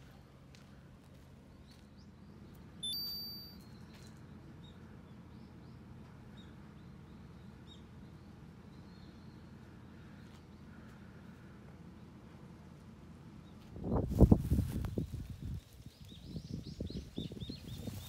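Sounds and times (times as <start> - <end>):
low outdoor hum: 0.0 - 18.0
high ding: 2.8 - 3.7.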